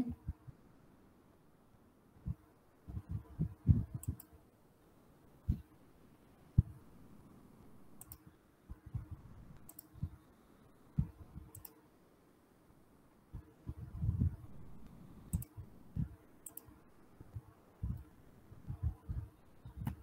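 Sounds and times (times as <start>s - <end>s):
soft mouse clicks: 2.9s - 4.4s, 8.0s - 10.2s, 11.0s - 11.8s, 13.4s - 15.6s, 16.4s - 18.1s, 18.7s - 20.0s.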